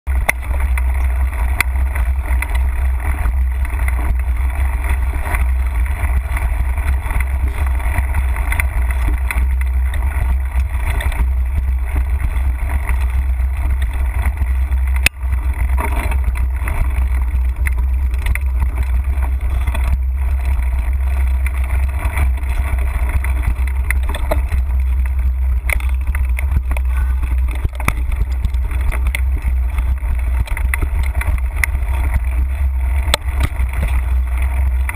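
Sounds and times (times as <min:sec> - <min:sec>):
bike tyres crunching on dirt: 0:00.1 - 0:34.9
wind buffeting microphone: 0:00.2 - 0:34.9.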